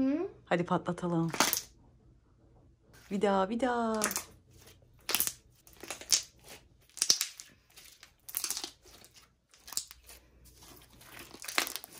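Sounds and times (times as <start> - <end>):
slime squelching and popping: 1.3 - 1.7, 3.9 - 4.4, 5.0 - 11.9.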